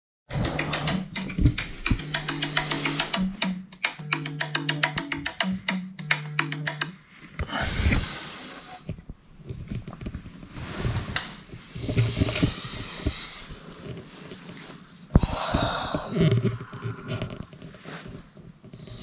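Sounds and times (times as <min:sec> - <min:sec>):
person breathing heavily: 0:02.0 - 0:03.4, 0:07.4 - 0:08.9, 0:11.8 - 0:13.6, 0:15.1 - 0:17.6
bedding rustling: 0:09.2 - 0:15.9.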